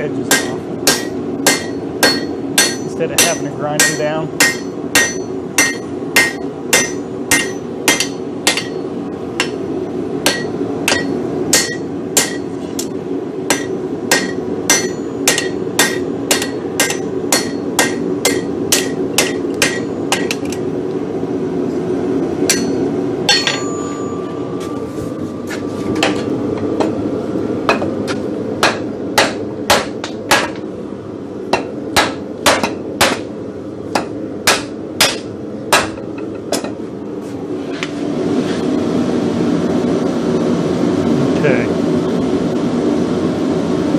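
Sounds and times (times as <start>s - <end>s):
hammer striking steel on anvil: 0.2s - 8.8s, 9.4s - 9.6s, 10.2s - 20.6s, 22.4s - 24.8s, 27.7s - 30.6s, 31.5s - 33.3s, 33.9s - 36.8s.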